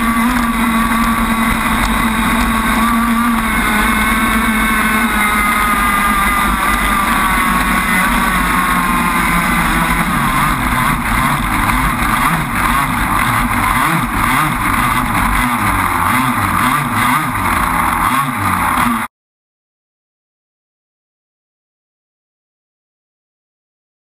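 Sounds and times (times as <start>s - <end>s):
boat two-stroke engine running: 0.0s - 19.1s.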